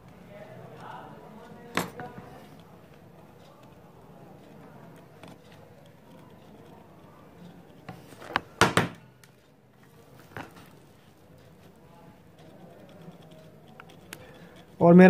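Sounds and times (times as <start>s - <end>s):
faint room noise: 0.0s - 15.0s
sharp knocks: 8.6s - 9.0s.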